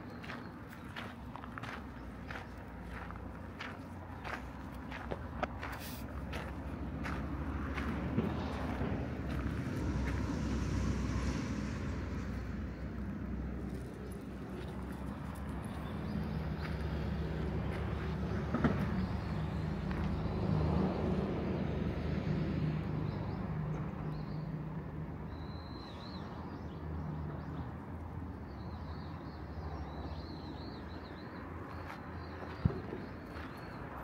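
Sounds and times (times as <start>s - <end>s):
vehicle engine humming: 0.0s - 20.8s.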